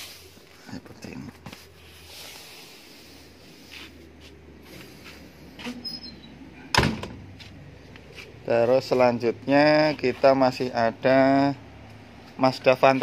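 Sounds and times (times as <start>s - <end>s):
hands rustling over seats: 0.0s - 5.8s
vehicle door slamming: 6.7s - 7.3s.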